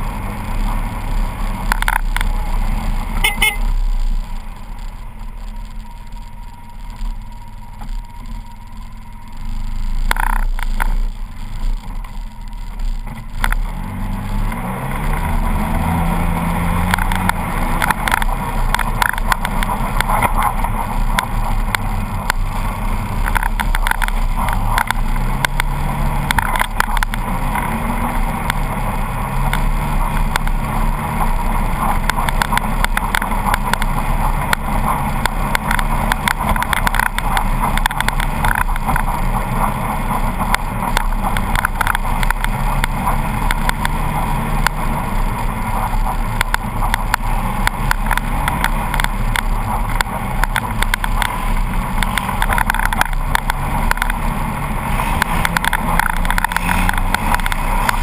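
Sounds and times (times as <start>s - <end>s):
vehicle engine revving: 0.0s - 58.0s
vehicle knocking and rattling: 29.4s - 54.3s.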